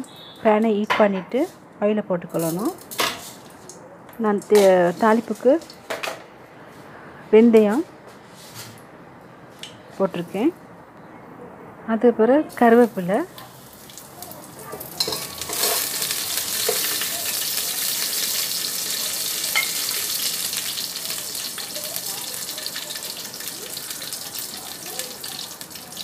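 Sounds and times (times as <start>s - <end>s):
seeds sizzling in hot oil: 13.3s - 26.0s.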